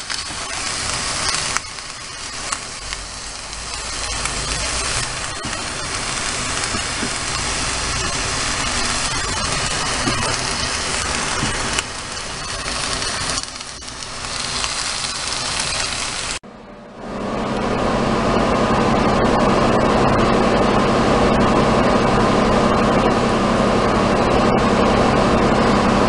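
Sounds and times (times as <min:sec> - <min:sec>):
chicken sizzling in frying pan: 0:00.0 - 0:16.4.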